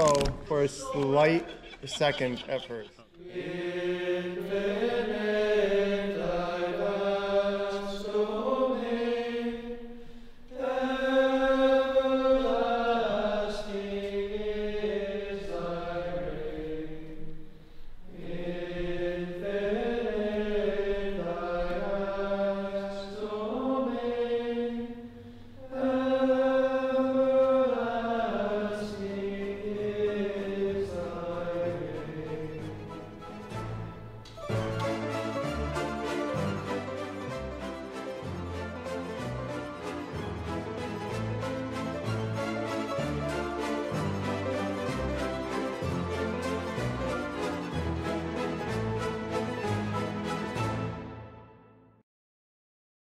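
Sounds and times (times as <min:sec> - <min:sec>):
voices singing slow chant: 0:02.8 - 0:33.2.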